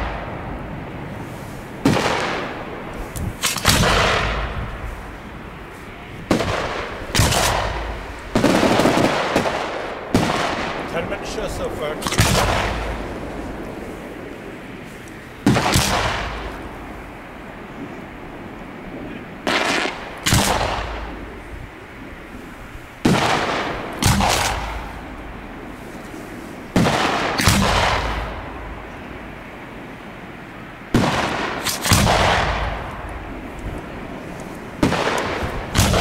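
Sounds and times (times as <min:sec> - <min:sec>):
fireworks bangs echoing: 0:01.8 - 0:05.2, 0:06.2 - 0:13.8, 0:15.4 - 0:17.0, 0:19.4 - 0:21.4, 0:23.0 - 0:25.8, 0:26.7 - 0:29.0, 0:30.9 - 0:36.0.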